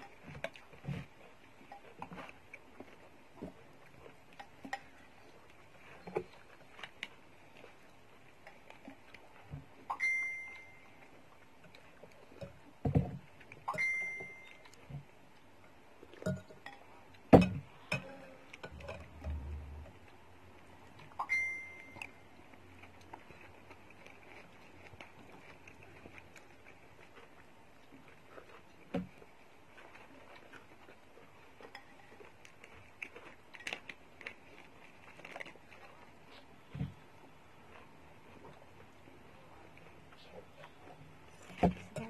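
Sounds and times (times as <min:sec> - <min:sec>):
cutlery clinking on ceramic bowl: 0:16.2 - 0:19.4.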